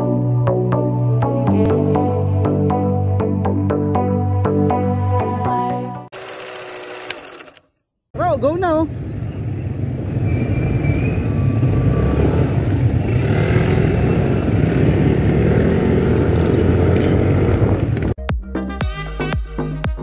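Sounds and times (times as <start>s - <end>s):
music: 0.0s - 6.1s, 18.2s - 20.0s
street traffic: 6.2s - 18.2s.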